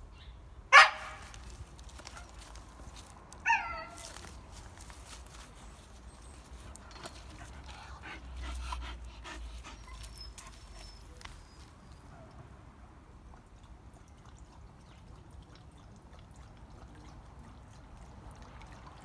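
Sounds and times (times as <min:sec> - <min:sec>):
dog whining: 0:09.2 - 0:12.0.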